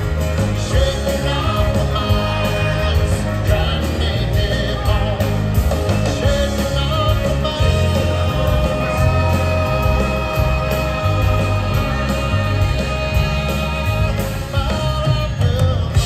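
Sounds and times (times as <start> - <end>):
bass line: 0.0 - 16.0
live rock band playing: 0.0 - 16.0.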